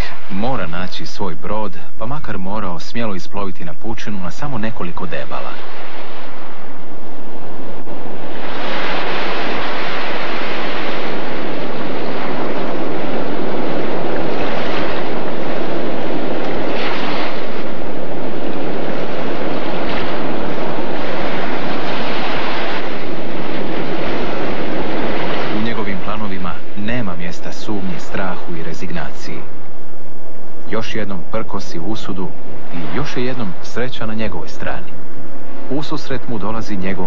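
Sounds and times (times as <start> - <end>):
wind: 0.0 - 37.0
ocean waves breaking: 4.9 - 30.6, 32.2 - 36.2.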